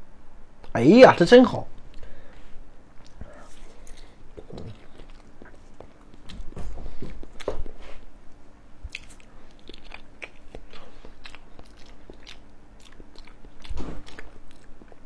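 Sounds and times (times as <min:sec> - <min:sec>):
person biting and chewing: 0:03.0 - 0:07.8, 0:08.8 - 0:15.0.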